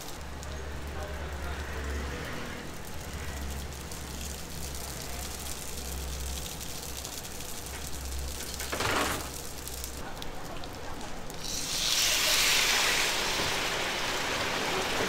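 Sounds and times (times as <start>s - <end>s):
kitchen equipment humming: 7.9s - 9.8s, 11.4s - 15.0s.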